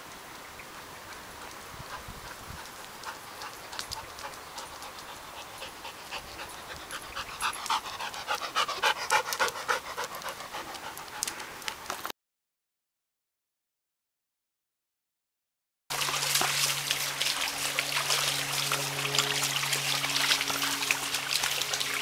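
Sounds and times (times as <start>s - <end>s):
dog panting: 1.4s - 11.8s.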